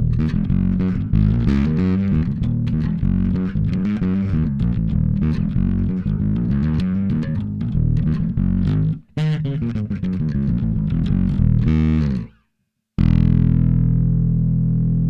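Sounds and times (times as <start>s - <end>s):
overdriven electric bass: 0.0s - 12.4s, 13.0s - 15.0s.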